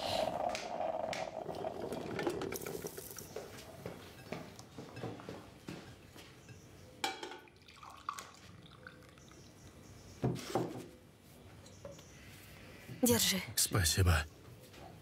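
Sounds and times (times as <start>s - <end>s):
coffee pouring into mug: 0.0s - 3.7s, 7.5s - 9.4s.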